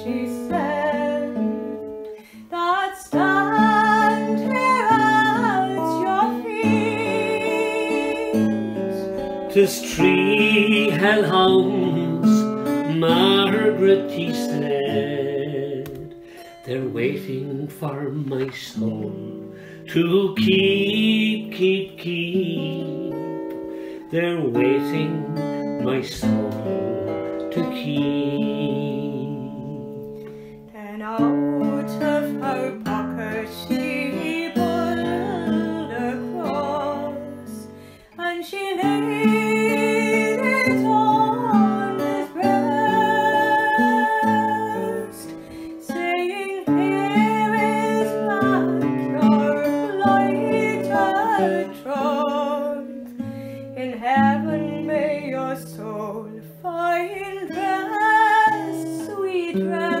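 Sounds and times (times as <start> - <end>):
plucked string instrument chords: 0.0 - 30.5.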